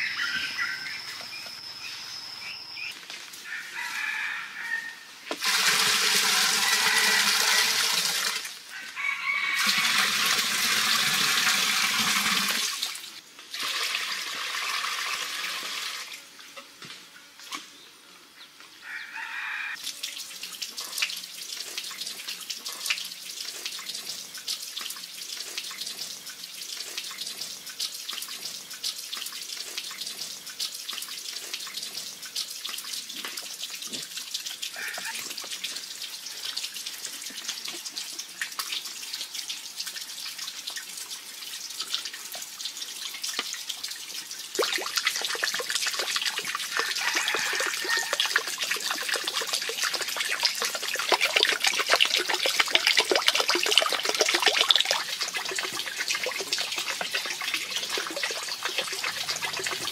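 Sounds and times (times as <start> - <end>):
water gushing from clay pot: 5.3 - 16.2, 20.6 - 59.9
water drips and splashes: 19.8 - 59.9
water trickling: 19.8 - 59.9.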